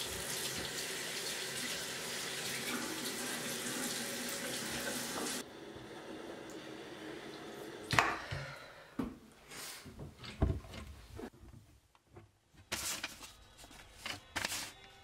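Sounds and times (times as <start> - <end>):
sink tap running: 0.0 - 8.0.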